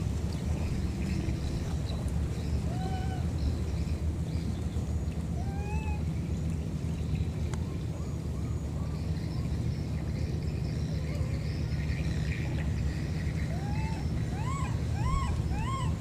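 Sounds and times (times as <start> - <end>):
low background rumble: 0.0 - 16.0
baby monkey squealing: 13.6 - 15.9.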